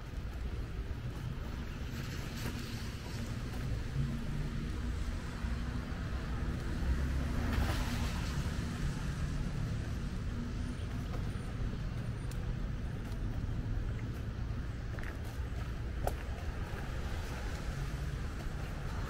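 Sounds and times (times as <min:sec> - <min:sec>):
traffic engine rumble: 0:00.0 - 0:19.0.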